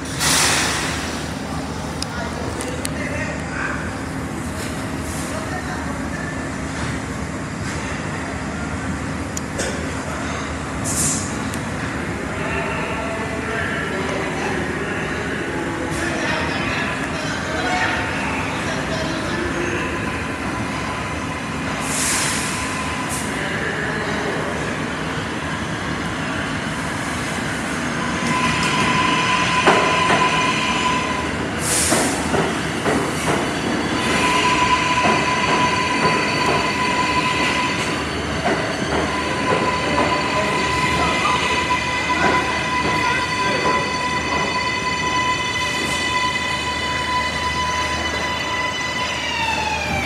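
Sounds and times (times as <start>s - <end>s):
train wheels squealing: 32.6s - 50.0s.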